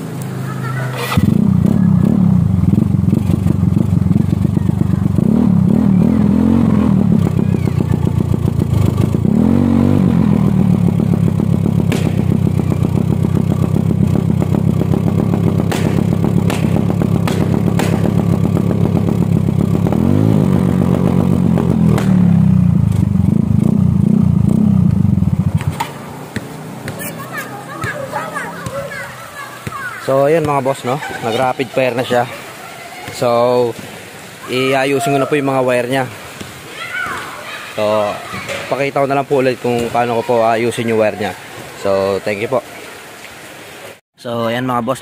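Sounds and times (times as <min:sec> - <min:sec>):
scooter engine revving: 0:00.0 - 0:32.3
exhaust backfire cracks: 0:00.9 - 0:26.0.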